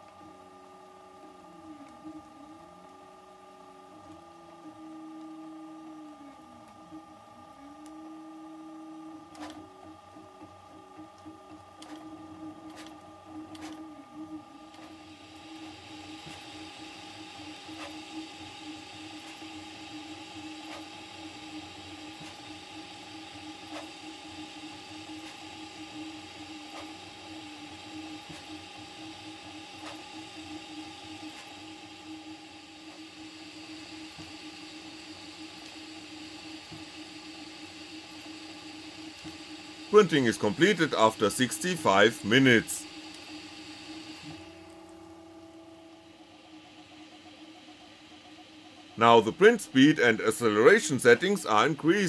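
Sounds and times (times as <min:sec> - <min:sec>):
printer stepper motors whining: 0:00.0 - 0:52.0
steady tones: 0:44.4 - 0:52.0.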